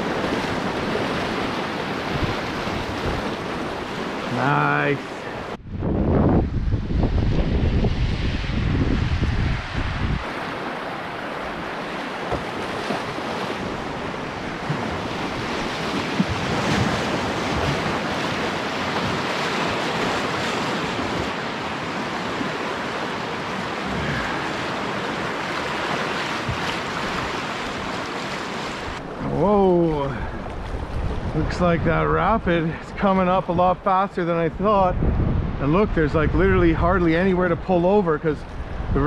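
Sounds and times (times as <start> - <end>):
waves breaking against canoe bow: 0.0 - 5.6, 7.2 - 31.9
whitewater rushing and splashing: 0.0 - 5.6, 6.2 - 39.0.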